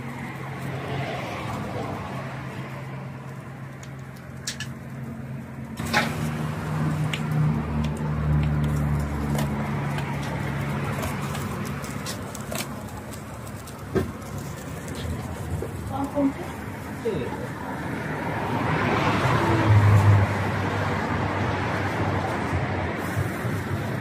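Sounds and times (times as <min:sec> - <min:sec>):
vehicle engine low hum: 0:00.0 - 0:24.0.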